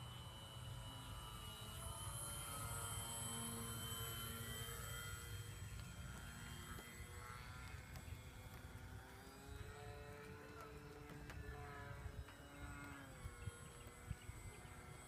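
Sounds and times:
model plane propeller motor whine: 0.0 - 15.0
wind rumble on microphone: 9.6 - 15.0.

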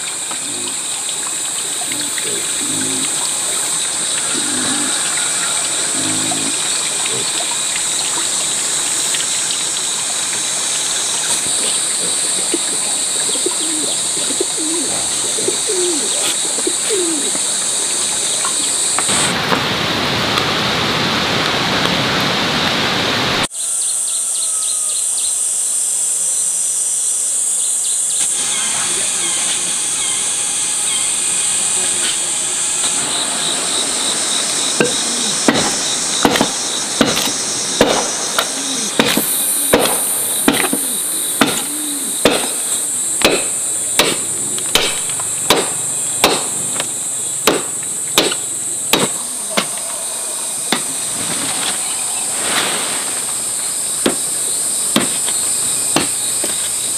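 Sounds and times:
high-pitched insect drone: 0.0 - 19.1, 23.5 - 56.9
sharp tool strikes: 34.8 - 40.8, 41.4 - 42.6, 43.2 - 46.6, 47.4 - 49.7.

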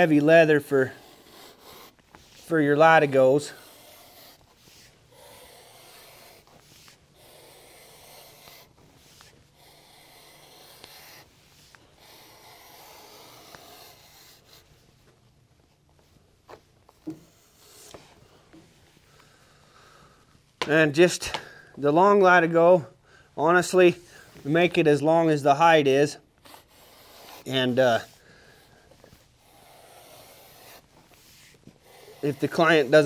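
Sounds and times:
blade rasping through leather: 0.0 - 14.8, 26.4 - 33.0.

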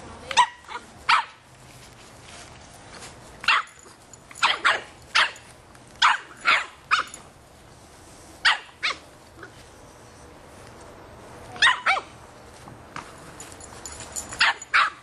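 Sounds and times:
puppy barking: 0.4 - 1.4, 3.4 - 5.4, 6.0 - 7.2, 8.4 - 9.5, 11.6 - 12.1, 14.4 - 15.0.

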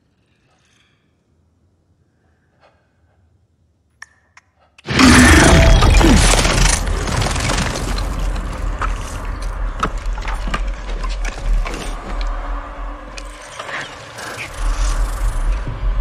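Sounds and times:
monster roar: 4.9 - 7.9.

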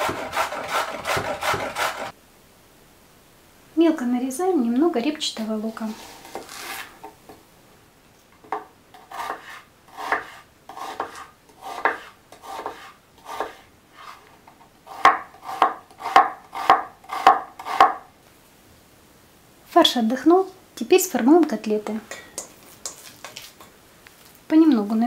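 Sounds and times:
knife chopping on cutting board: 0.0 - 2.1, 8.5 - 13.6, 14.9 - 18.0.

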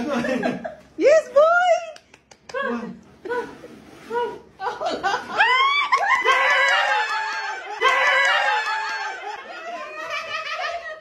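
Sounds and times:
people laughing: 0.0 - 0.9, 4.6 - 11.0.

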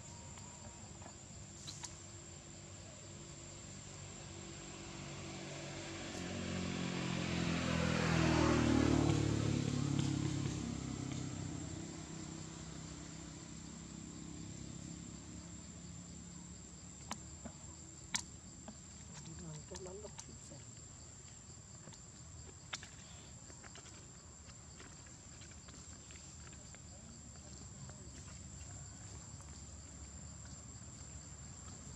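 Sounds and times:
vehicle passing by: 3.5 - 16.4.

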